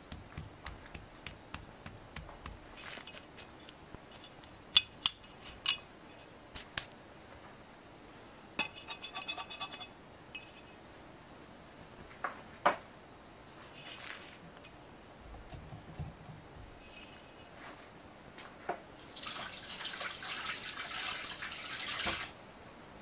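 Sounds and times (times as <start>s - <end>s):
crumbs scratching: 0.1s - 4.4s, 13.7s - 14.4s.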